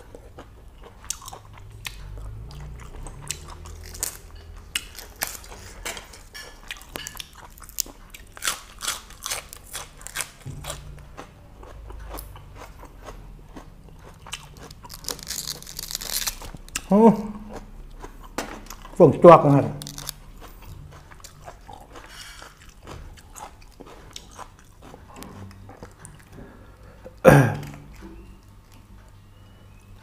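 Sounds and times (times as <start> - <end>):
chewing and crunching: 0.0 - 29.9.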